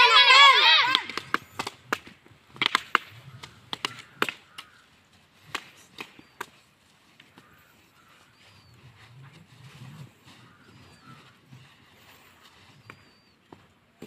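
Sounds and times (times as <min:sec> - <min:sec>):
bamboo staffs clacking: 0:00.9 - 0:07.4.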